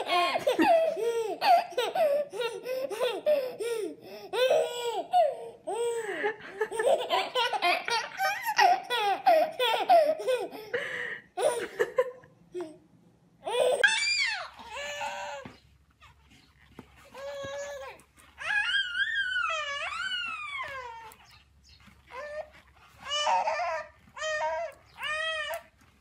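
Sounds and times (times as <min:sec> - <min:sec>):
toddler whining cry: 0:00.0 - 0:06.0, 0:13.4 - 0:16.2, 0:17.0 - 0:21.4, 0:22.1 - 0:25.8
babies belly-laughing: 0:00.0 - 0:10.8, 0:13.4 - 0:25.7.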